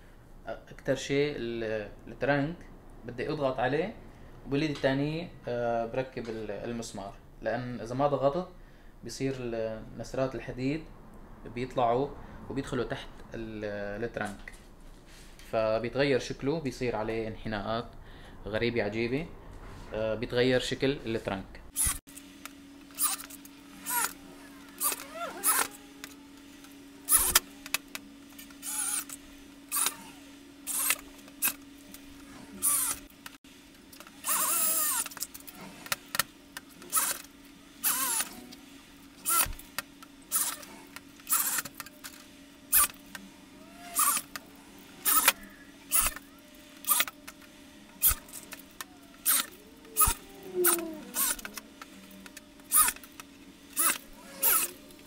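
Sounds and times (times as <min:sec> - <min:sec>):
electric drill driving screws into steel: 0:21.8 - 0:22.0, 0:22.9 - 0:26.2, 0:27.0 - 0:33.1, 0:34.0 - 0:38.5, 0:39.2 - 0:41.8, 0:42.7 - 0:43.2, 0:43.8 - 0:44.4, 0:45.0 - 0:46.2, 0:46.8 - 0:47.2, 0:48.0 - 0:51.6, 0:52.2 - 0:55.0.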